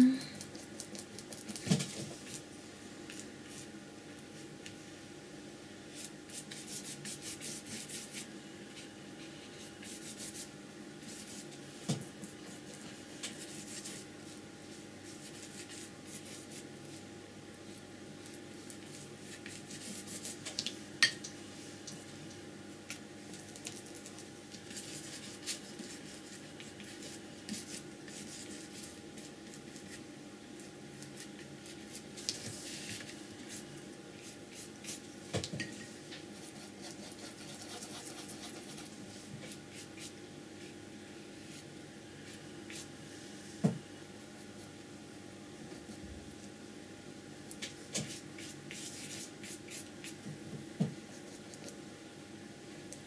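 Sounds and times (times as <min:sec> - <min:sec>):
brush scrubbing on paper: 0:06.0 - 0:08.3, 0:09.6 - 0:11.5, 0:13.3 - 0:16.7, 0:18.9 - 0:20.4, 0:36.4 - 0:40.2, 0:48.0 - 0:50.2.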